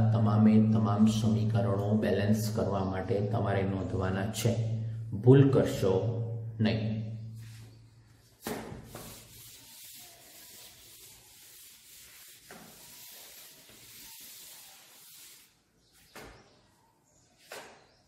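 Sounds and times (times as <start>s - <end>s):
duster rubbing chalkboard: 7.4s - 16.1s.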